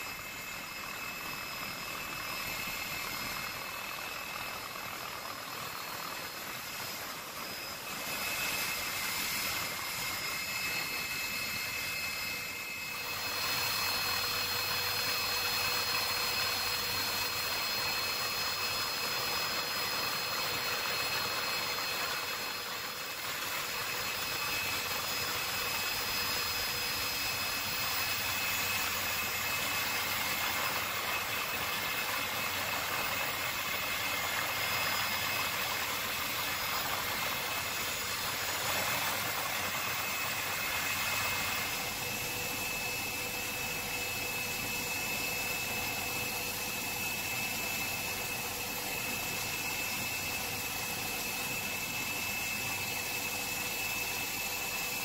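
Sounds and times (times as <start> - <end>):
high turbine whine: 0.0 - 55.0
helicopter cabin rush: 19.7 - 55.0.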